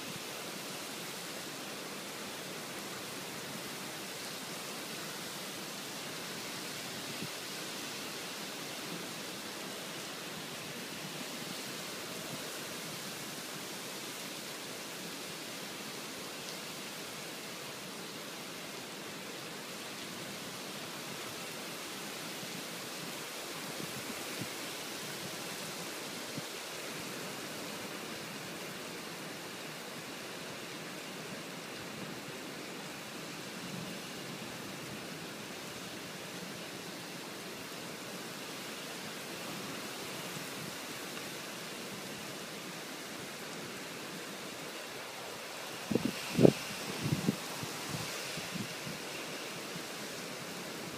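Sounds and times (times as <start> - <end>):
heavy rain pouring: 0.0 - 50.9.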